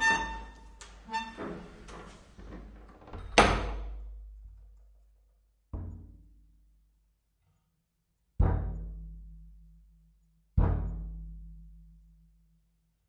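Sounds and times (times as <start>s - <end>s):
heavy steel door thunk: 2.4s - 4.0s
metallic clanks and clicks of lock: 2.7s - 4.0s.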